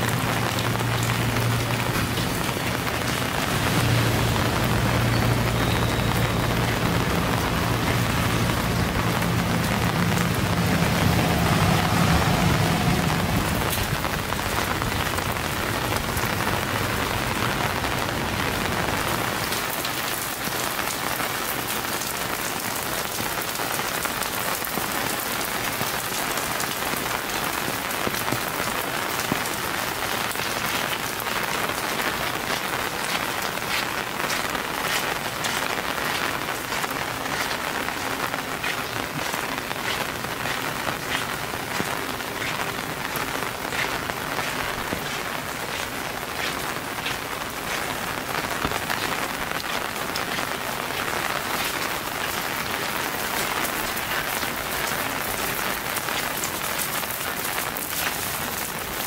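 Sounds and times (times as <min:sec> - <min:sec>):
rain drops on hard surfaces: 0:00.0 - 0:59.0
low rumble: 0:00.5 - 0:18.7.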